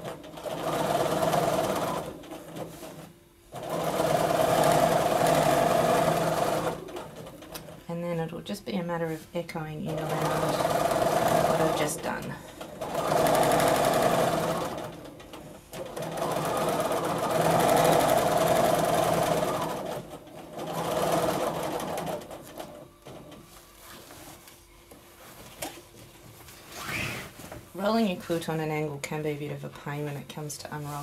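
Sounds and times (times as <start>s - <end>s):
sewing machine running fast: 0.0s - 2.4s, 3.6s - 7.2s, 9.9s - 15.1s, 15.7s - 22.6s.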